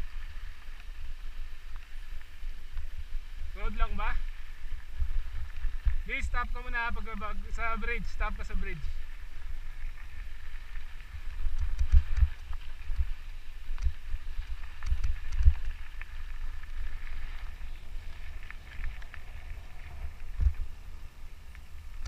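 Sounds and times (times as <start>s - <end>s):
tyres crunching on gravel: 0.0s - 22.0s
bike rattling over bumps: 8.5s - 22.0s.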